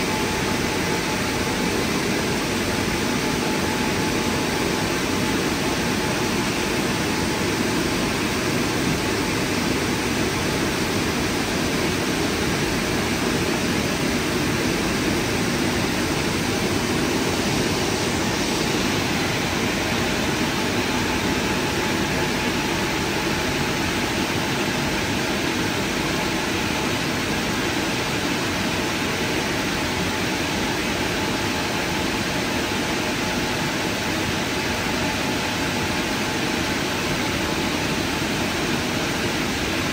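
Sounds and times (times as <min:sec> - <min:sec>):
car wash drying blowers: 0:00.0 - 0:39.9.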